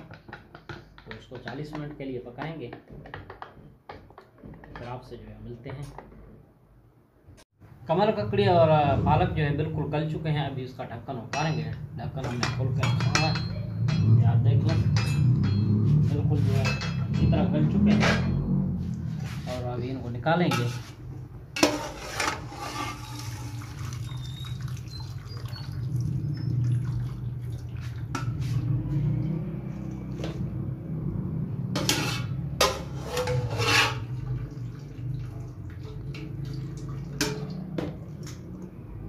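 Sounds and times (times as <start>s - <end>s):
metal clinking on metal: 12.4s - 14.3s, 14.9s - 15.8s
water draining through colander: 22.7s - 28.3s, 33.3s - 38.6s
wet splashing: 23.2s - 28.2s, 34.2s - 38.6s.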